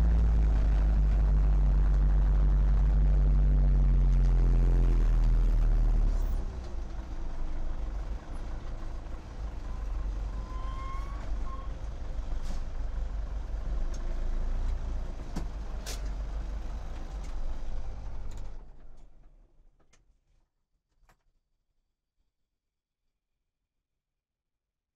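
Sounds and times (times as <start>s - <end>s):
diesel tractor engine idling: 0.0s - 18.9s
brief squeak: 9.6s - 11.8s.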